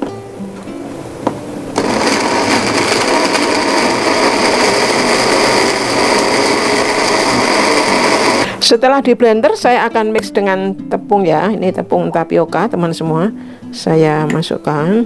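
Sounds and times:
blender motor running: 1.8s - 8.6s.

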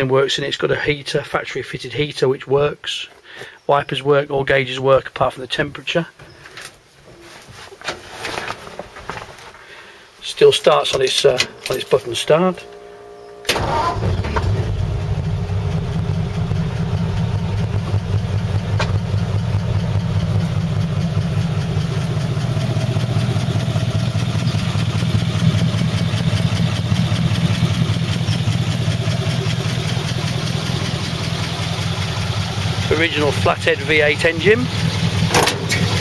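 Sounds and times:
engine idling: 11.0s - 36.0s
engine starter cranking: 13.4s - 19.5s, 32.8s - 36.0s.

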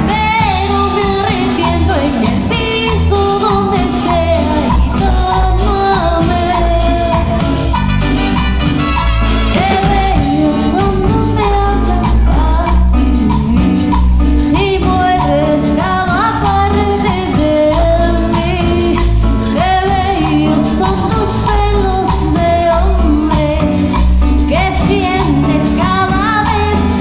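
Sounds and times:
person singing lead vocal: 0.0s - 7.8s, 9.4s - 27.0s
congas: 0.0s - 27.0s
latin dance band playing: 0.0s - 27.0s.

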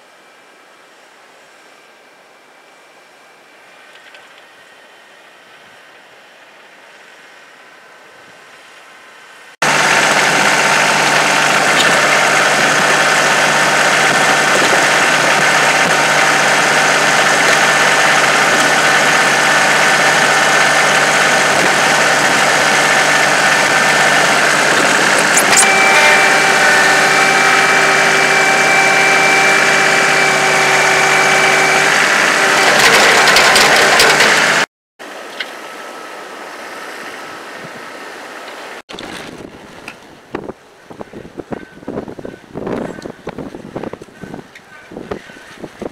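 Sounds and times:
high-pitched whine: 0.0s - 34.7s
wind: 0.0s - 45.9s
tractor diesel engine running: 3.7s - 34.7s, 38.9s - 45.9s.

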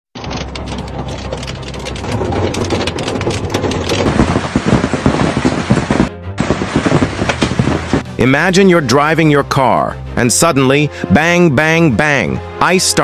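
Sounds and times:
hailstones pelting vehicle roof: 0.2s - 8.0s.

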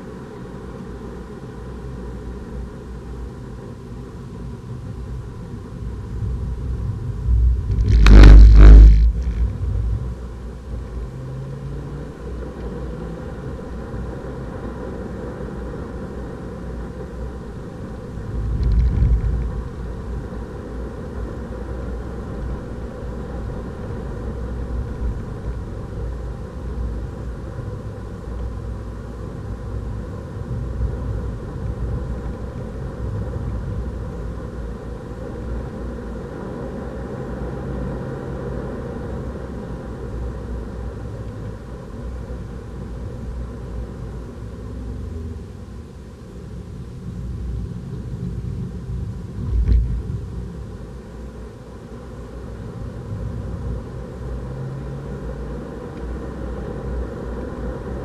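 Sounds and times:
car engine and road rumble: 0.0s - 58.0s
loud thud: 7.7s - 9.6s.

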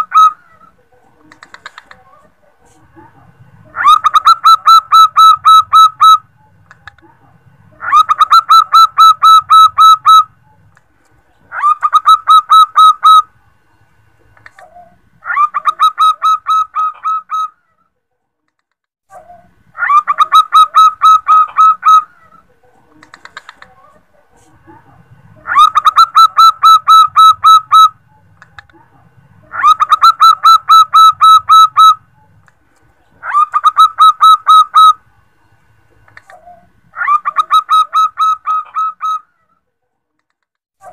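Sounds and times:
dove cooing: 0.0s - 2.4s, 3.6s - 6.5s, 7.8s - 10.6s, 11.5s - 13.3s, 19.2s - 24.0s, 25.4s - 28.2s, 29.4s - 32.3s, 33.2s - 35.0s.

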